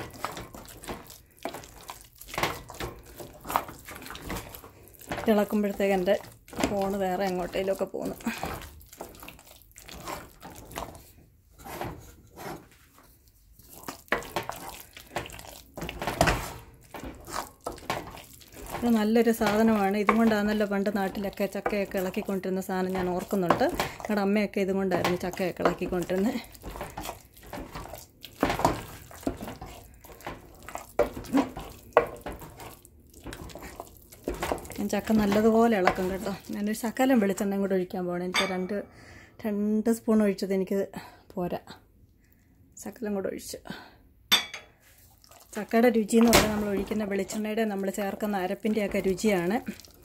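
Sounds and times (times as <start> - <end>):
wooden churner mashing fruit: 0.0 - 37.9, 44.9 - 50.0
wood knocking against metal pot: 18.7 - 22.3.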